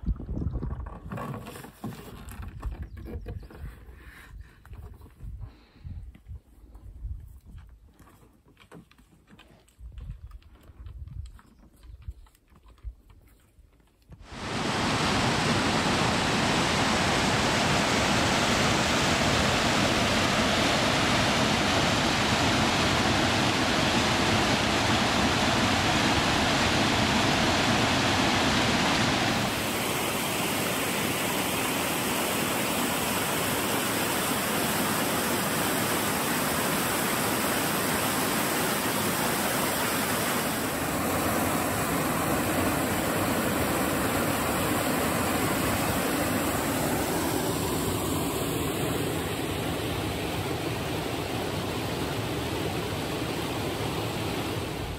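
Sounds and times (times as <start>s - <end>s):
water rushing down a cascade: 14.2s - 54.9s.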